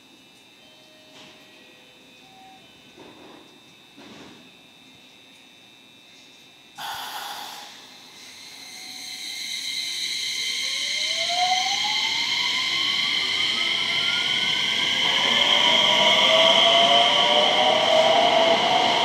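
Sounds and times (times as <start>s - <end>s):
air brake hiss: 6.8s - 8.6s
steady high tones: 6.8s - 16.6s
train motor whine rising: 6.8s - 19.0s.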